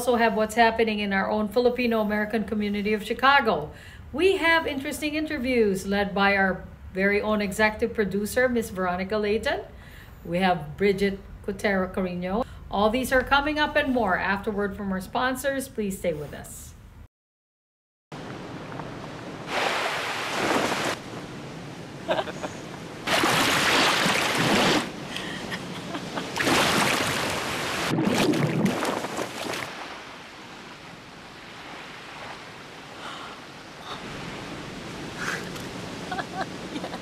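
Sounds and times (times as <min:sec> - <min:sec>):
ocean waves washing in: 0:18.2 - 0:37.0.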